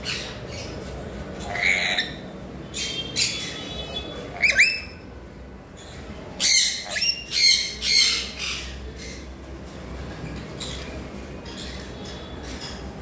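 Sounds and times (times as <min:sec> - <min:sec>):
parrots squawking: 0:00.0 - 0:05.1, 0:05.8 - 0:09.3.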